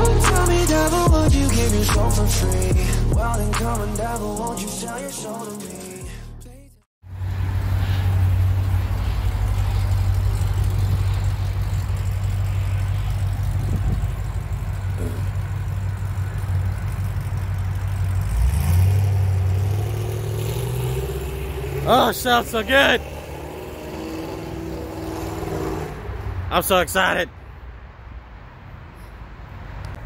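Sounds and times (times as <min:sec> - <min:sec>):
car engine running: 0:00.0 - 0:23.2.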